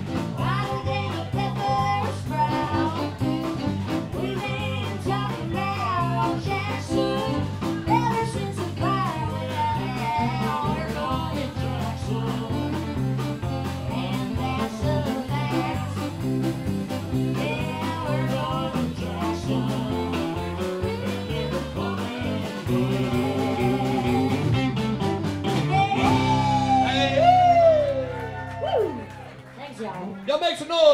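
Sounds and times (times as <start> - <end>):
country band playing: 0.0 - 30.9
woman singing: 0.3 - 13.0, 13.6 - 16.4, 17.0 - 24.7, 25.7 - 26.9.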